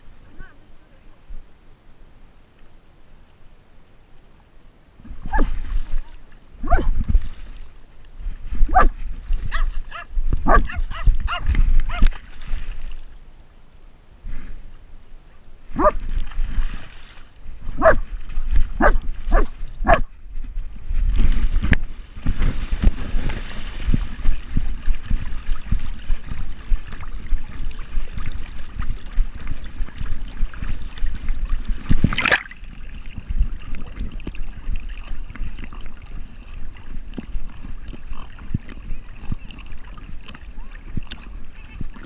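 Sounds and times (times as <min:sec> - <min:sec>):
water sloshing and splashing: 0:05.0 - 0:13.4, 0:15.7 - 0:42.0
loud sudden splash: 0:31.9 - 0:32.7.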